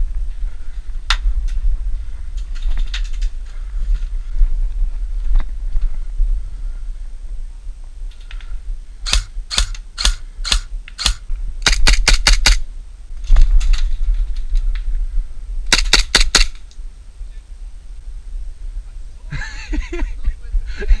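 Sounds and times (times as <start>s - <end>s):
airsoft rifle shots: 9.0s - 12.6s, 15.7s - 16.6s.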